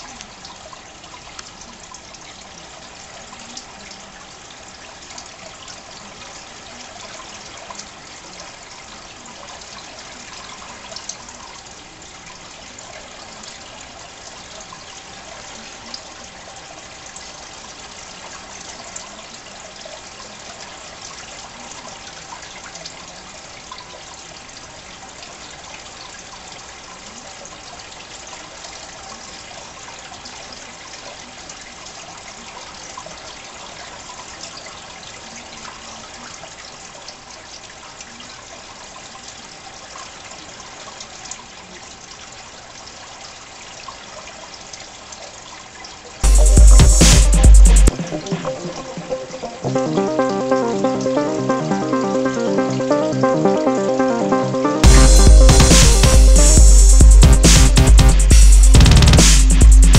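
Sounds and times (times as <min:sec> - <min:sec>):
water trickling in fish tank: 0:00.0 - 0:46.2.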